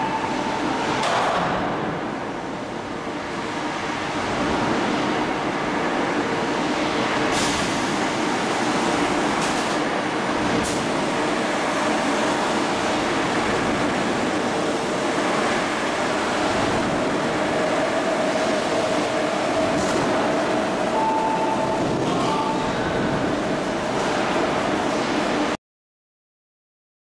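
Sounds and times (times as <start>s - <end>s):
higher machine tone: 0.0s - 1.0s, 20.8s - 23.3s.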